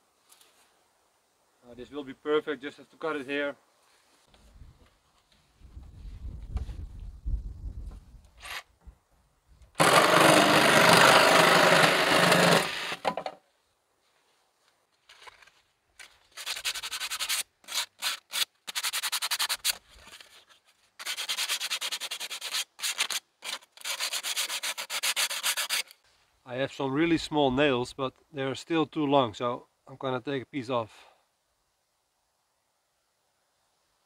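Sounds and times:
power tool cutting wood: 9.8s - 13.2s
sandpaper rubbing on wood: 16.3s - 20.3s, 21.0s - 26.0s.

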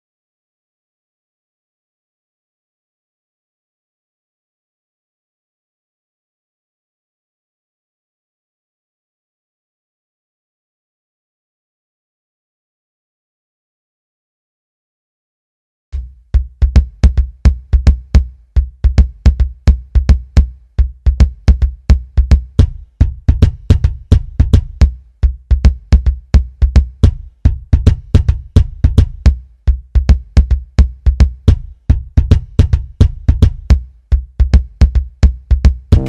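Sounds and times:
drum-machine beat: 16.0s - 36.0s.

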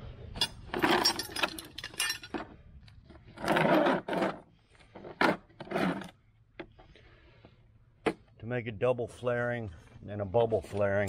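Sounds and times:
handling rattling and scraping: 0.3s - 6.9s
rustling scrape: 3.3s - 6.2s.

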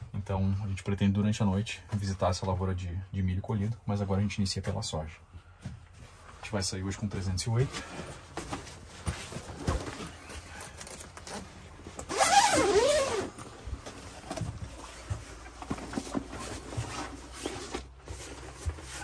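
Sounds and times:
rustling fabric: 7.7s - 19.0s
zipper being pulled open: 12.0s - 13.4s.

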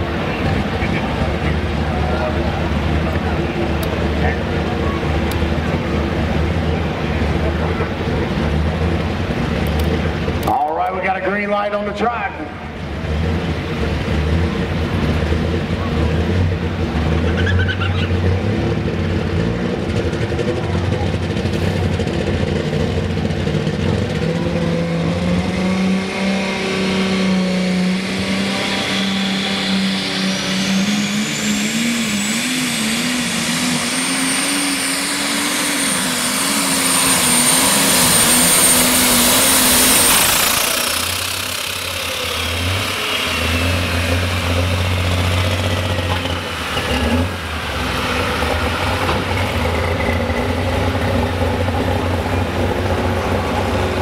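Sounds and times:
diesel tractor engine at full throttle: 0.0s - 54.0s
turbo whine: 26.6s - 47.4s.

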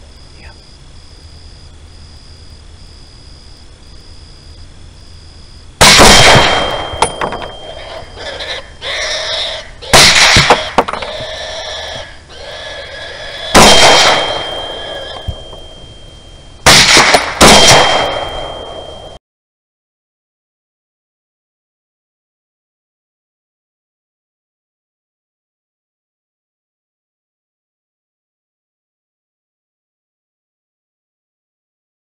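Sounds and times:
rifle shots with echo: 5.8s - 7.7s, 9.9s - 11.0s, 13.5s - 15.8s, 16.6s - 19.0s.

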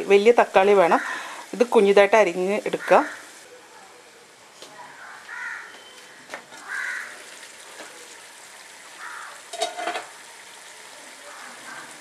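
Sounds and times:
crow cawing: 2.8s - 3.2s, 4.9s - 7.3s, 9.0s - 9.5s, 11.2s - 12.0s
chicken sizzling in pot: 6.5s - 12.0s.

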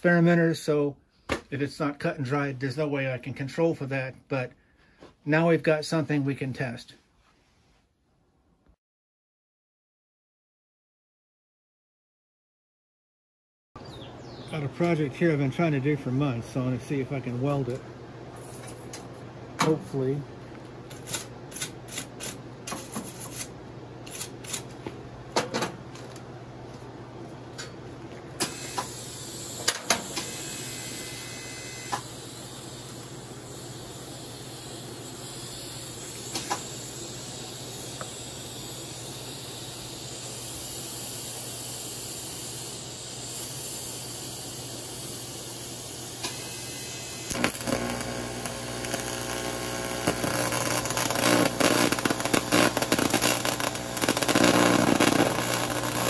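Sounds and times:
welding arc crackling buzz: 20.9s - 24.8s, 28.4s - 56.0s
steady hiss: 31.8s - 56.0s.

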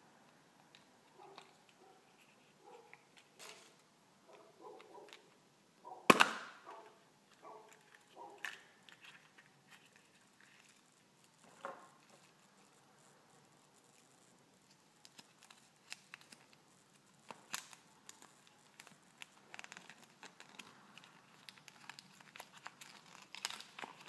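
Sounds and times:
plastic capsule popping open: 6.1s - 6.6s.

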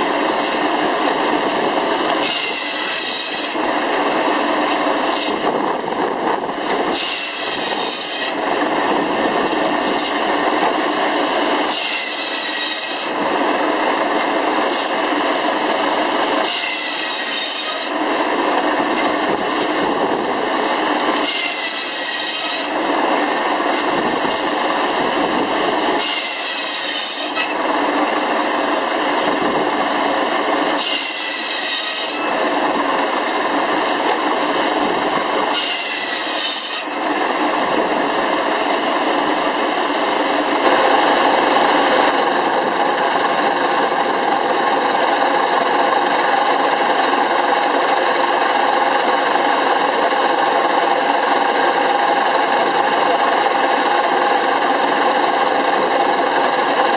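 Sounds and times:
circular saw whining: 0.0s - 56.9s
steam engine and belt drive running: 0.0s - 56.9s.

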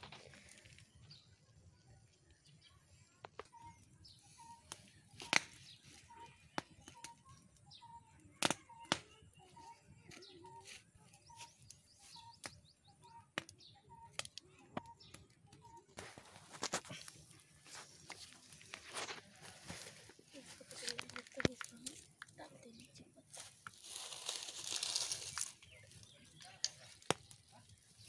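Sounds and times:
wood fire crackling and popping: 0.0s - 1.2s, 4.5s - 7.2s, 8.4s - 9.1s, 13.3s - 28.0s
faint higher chirps: 2.5s - 19.5s.

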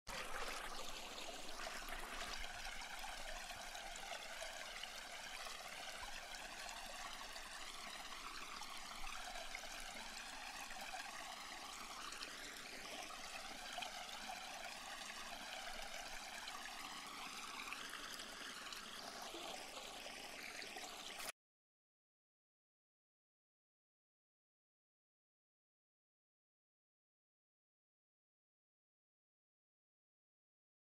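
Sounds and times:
faint running water: 0.1s - 21.3s.

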